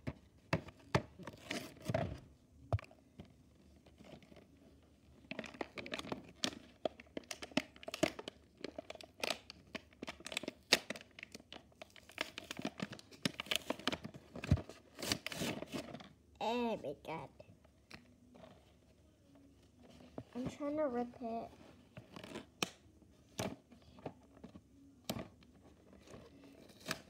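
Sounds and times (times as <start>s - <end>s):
plastic packaging crinkling and tearing: 5.2s - 16.1s, 25.8s - 27.0s.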